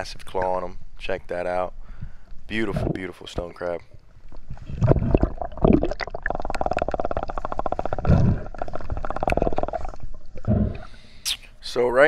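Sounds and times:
buzzing underwater gurgle: 0:04.1 - 0:11.0.

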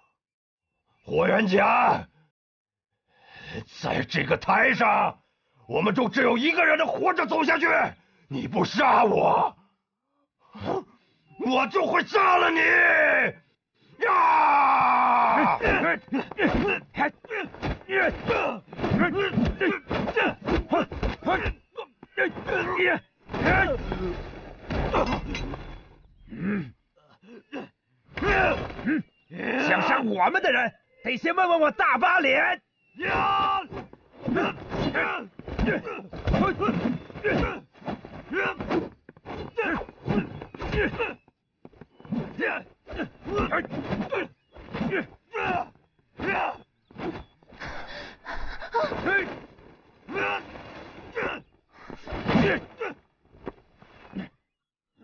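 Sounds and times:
grunts and cries of exertion: 0:10.4 - 0:11.1, 0:12.6 - 0:30.1, 0:33.0 - 0:53.1
thuds of blows landing: 0:15.4 - 0:26.4, 0:33.1 - 0:41.1.

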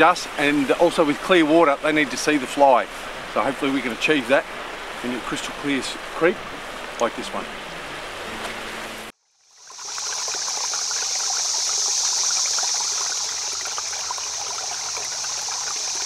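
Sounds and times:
babbling stream: 0:00.0 - 0:16.0
rushing river water: 0:00.0 - 0:16.0
water trickling drips: 0:09.5 - 0:16.0.

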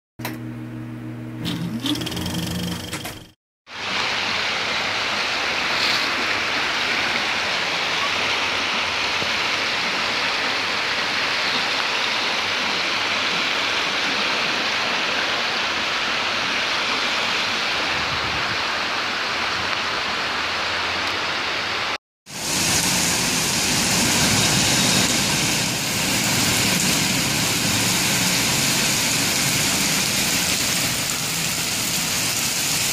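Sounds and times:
floodwater rushing: 0:03.7 - 0:32.9.

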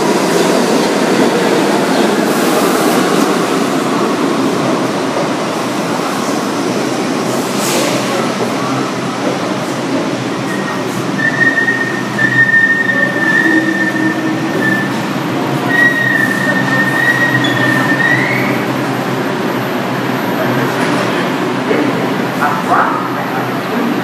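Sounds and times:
train wheels rumbling on rail: 0:00.0 - 0:24.0
high brake squeal: 0:15.7 - 0:18.6.

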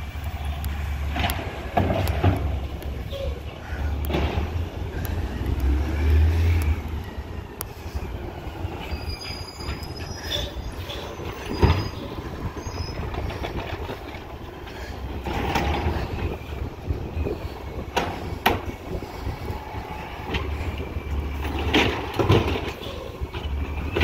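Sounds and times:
garbage truck rumbling: 0:00.0 - 0:24.0
thin high squeals: 0:08.6 - 0:13.4.

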